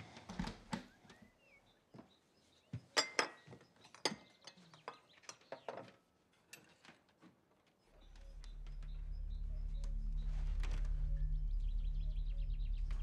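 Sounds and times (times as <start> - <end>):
tableware clinking: 3.0 - 4.3.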